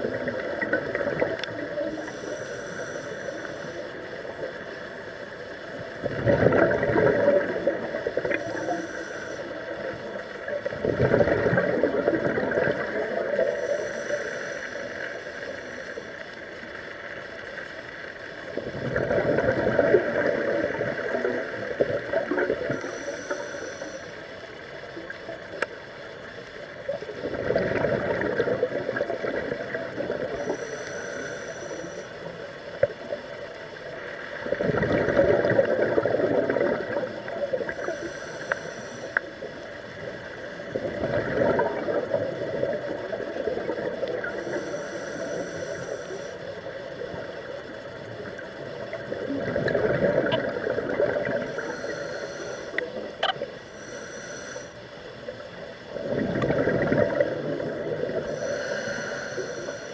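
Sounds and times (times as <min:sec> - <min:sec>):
exhaled bubbles gushing: 0:00.0 - 0:02.0, 0:05.8 - 0:08.7, 0:09.7 - 0:13.6, 0:18.5 - 0:22.9, 0:26.9 - 0:30.6, 0:34.3 - 0:37.9, 0:40.0 - 0:44.5, 0:48.2 - 0:51.7, 0:55.9 - 0:58.5
faint clicks: 0:00.2 - 0:05.8, 0:21.8 - 0:27.0, 0:36.5 - 0:40.6, 0:49.7 - 0:55.8
regulator hiss on inhale: 0:00.2 - 0:05.9, 0:07.6 - 0:10.7, 0:12.7 - 0:17.8, 0:20.2 - 0:25.0, 0:29.6 - 0:34.4, 0:35.5 - 0:40.7, 0:41.8 - 0:48.4, 0:51.2 - 0:56.1, 0:57.3 - 0:59.9.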